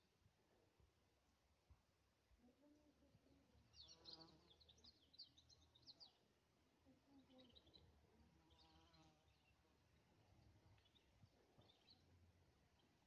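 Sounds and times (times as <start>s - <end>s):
small birds chirping: 2.6s - 13.0s.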